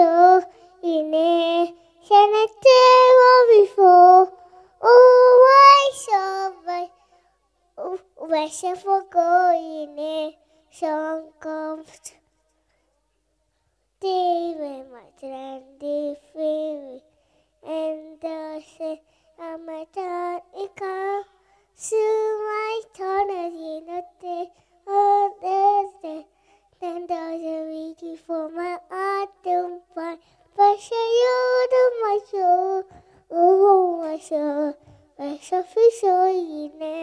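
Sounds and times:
child singing solo: 0.0s - 7.0s.

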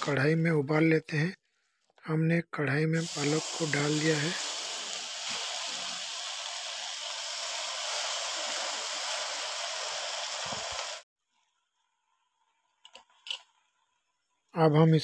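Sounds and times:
spinach sizzling in hot pan: 3.0s - 11.1s.

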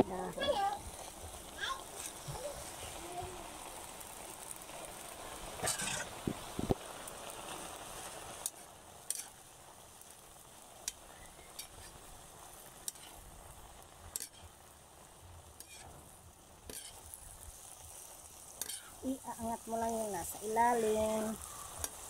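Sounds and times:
vegetables sizzling in a pan: 0.0s - 22.0s
metal spoon scraping a pan: 5.6s - 6.2s, 8.4s - 9.4s, 11.5s - 12.0s, 12.8s - 13.2s, 14.1s - 14.6s, 15.6s - 16.0s, 16.7s - 17.1s, 18.6s - 19.0s.

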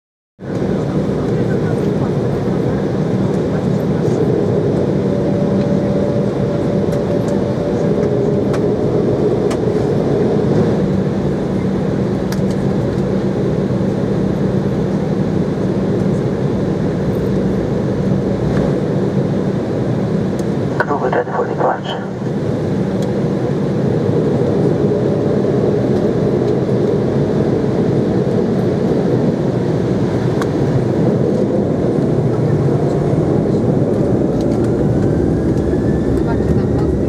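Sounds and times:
jet engines humming: 0.4s - 37.0s.

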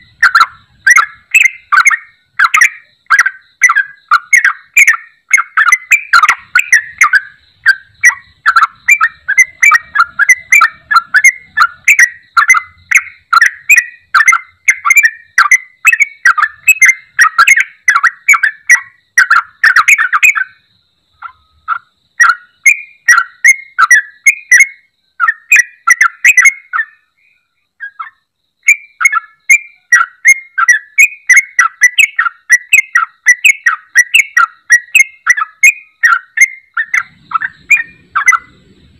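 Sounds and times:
bird bubbling chattering song: 0.0s - 20.6s, 28.9s - 38.9s.

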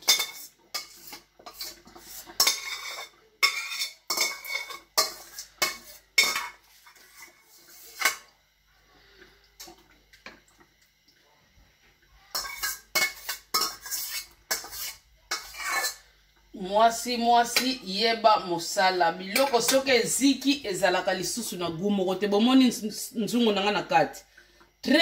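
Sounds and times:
spoon scraping metal pot: 0.0s - 8.3s, 12.3s - 16.1s.

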